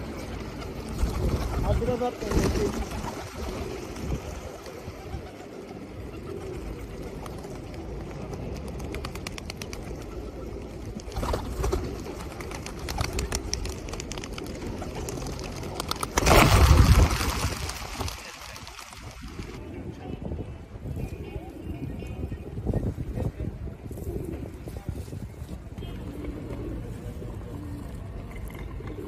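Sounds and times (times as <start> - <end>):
pigeons cooing: 2.7 - 15.8, 25.9 - 29.0.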